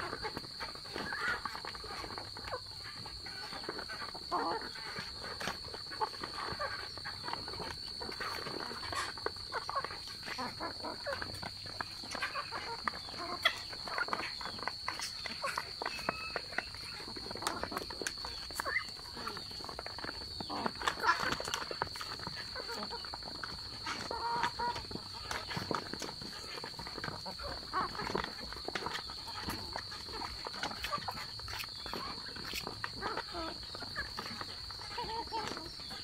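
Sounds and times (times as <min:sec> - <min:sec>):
birds clucking and calling: 0:00.0 - 0:36.0.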